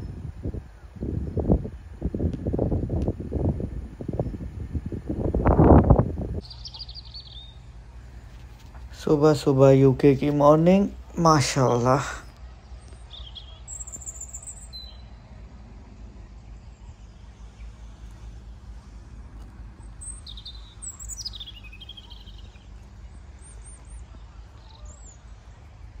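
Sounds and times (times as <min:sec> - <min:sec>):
small birds chirping: 0:06.2 - 0:26.0.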